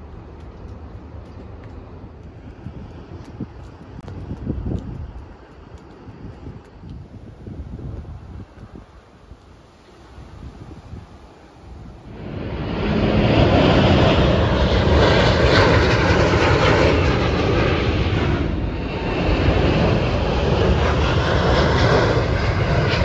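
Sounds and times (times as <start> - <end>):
jet engines roaring: 11.9 - 23.0.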